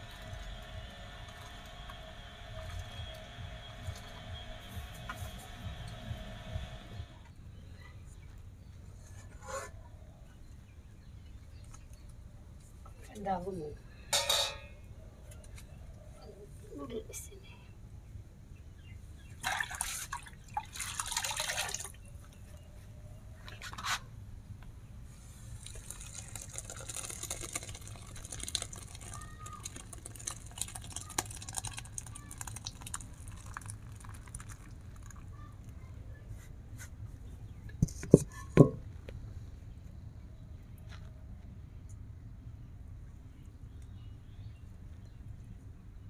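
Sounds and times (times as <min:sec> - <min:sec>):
liquid splashing and trickling: 0:19.4 - 0:22.1, 0:25.5 - 0:35.7.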